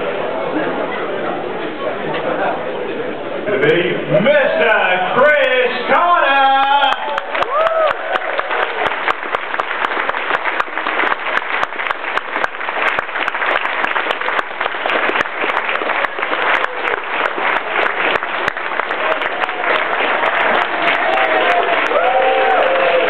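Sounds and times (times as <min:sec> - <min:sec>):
audience applauding: 0:06.6 - 0:23.0.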